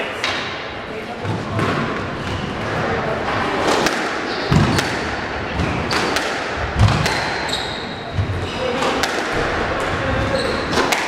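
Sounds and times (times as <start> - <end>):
shoes squeaking on wooden floor: 7.4 - 8.9, 9.8 - 10.8.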